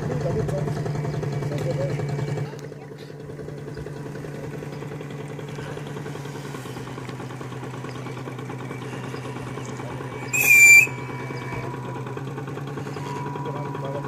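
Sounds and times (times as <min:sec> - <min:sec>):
model boat engines droning: 0:00.0 - 0:14.0
high-pitched whistle blast: 0:10.2 - 0:11.7.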